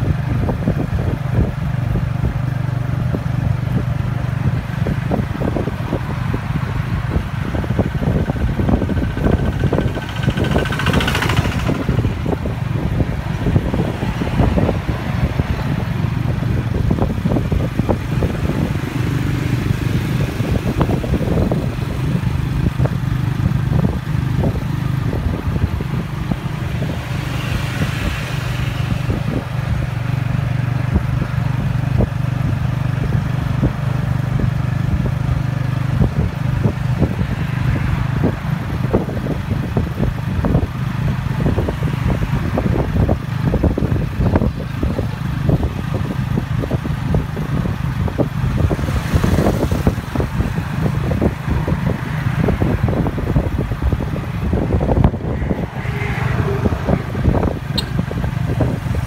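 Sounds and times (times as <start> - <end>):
motorcycle engine running: 0.0 - 59.0
carriage rattling and clattering: 8.6 - 12.8.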